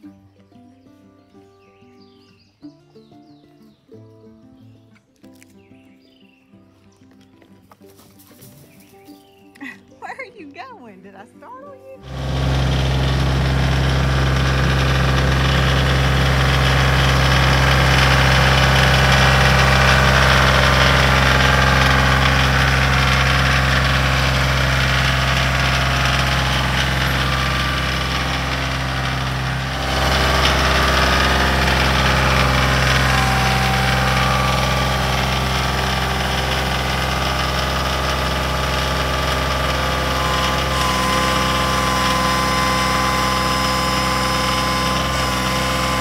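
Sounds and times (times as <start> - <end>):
tractor diesel engine idling: 12.0 - 46.0.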